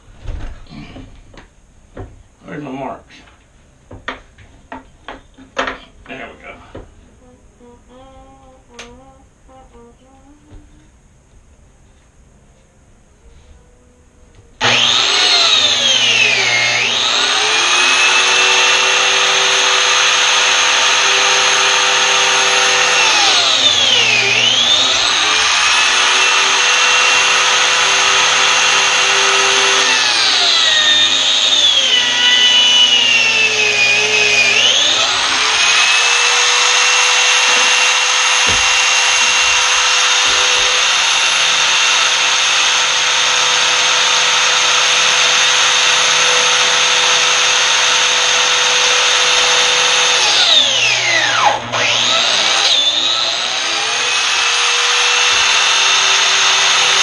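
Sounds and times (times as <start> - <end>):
power tool cutting wood: 14.6 - 57.0.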